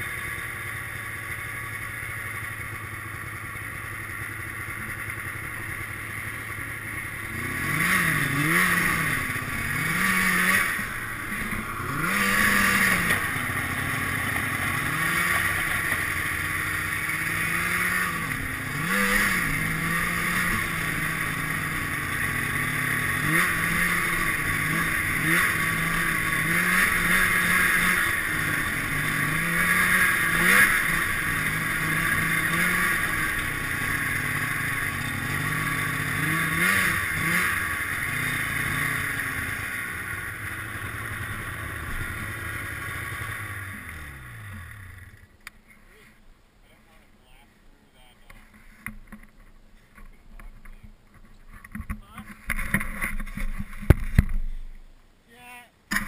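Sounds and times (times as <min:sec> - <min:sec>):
snowmobile engine revving: 0:04.1 - 0:45.2.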